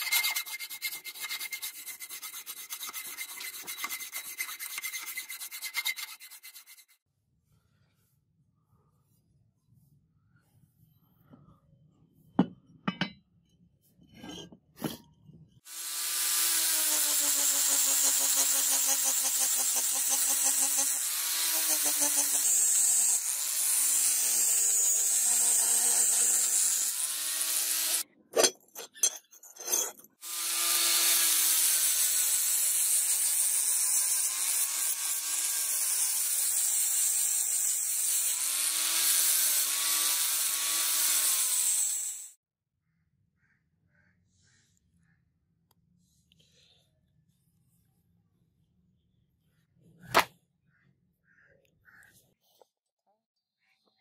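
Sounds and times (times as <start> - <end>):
power grinder grinding metal: 15.7 - 28.0, 29.7 - 42.4.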